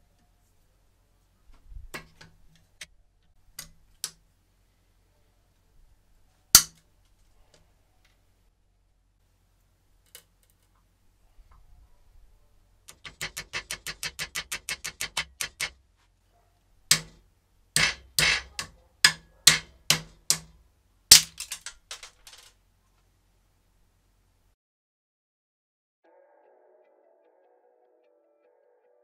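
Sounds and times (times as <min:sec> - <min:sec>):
wrench clicking on plastic: 0:12.9 - 0:15.8, 0:17.8 - 0:22.5
wrench knocking on plastic: 0:12.9 - 0:15.8, 0:16.9 - 0:17.2, 0:17.8 - 0:22.0
plastic rattle: 0:21.1 - 0:22.6.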